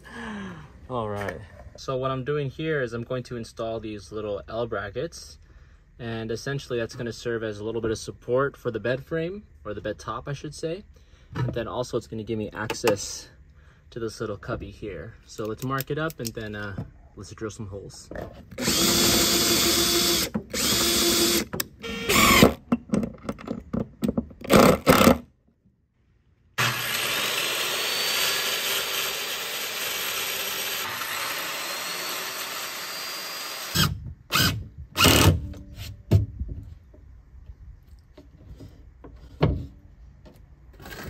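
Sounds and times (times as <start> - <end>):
cordless drill drilling: 18.6 - 22.6, 26.6 - 35.4
circular saw cutting wood: 26.6 - 35.3.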